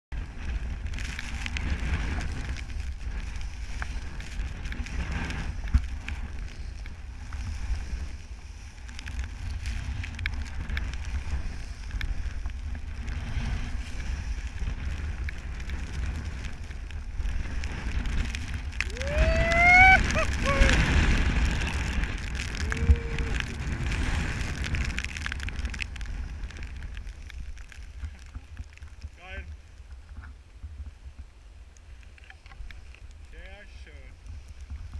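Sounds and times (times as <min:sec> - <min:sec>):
wind buffeting microphone: 0:00.1 - 0:34.9
skis swishing through snow: 0:00.2 - 0:31.1
person whooping: 0:18.8 - 0:21.2, 0:22.5 - 0:23.6.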